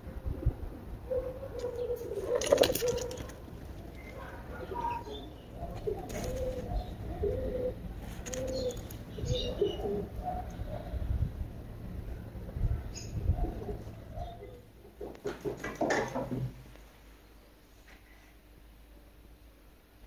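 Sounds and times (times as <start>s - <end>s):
pigeons cooing: 0.0s - 16.5s.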